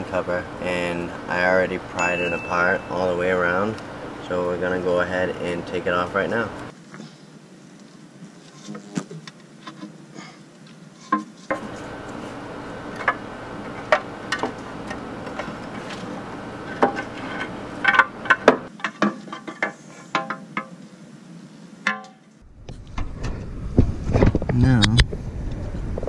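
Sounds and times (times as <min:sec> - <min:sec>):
faint low rumble: 0:22.4 - 0:26.0.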